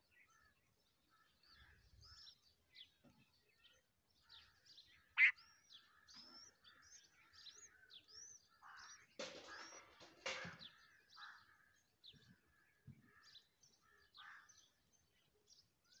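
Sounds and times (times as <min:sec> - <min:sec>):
birds chirping: 0:00.0 - 0:16.0
sharp loud bird call: 0:05.2 - 0:05.4.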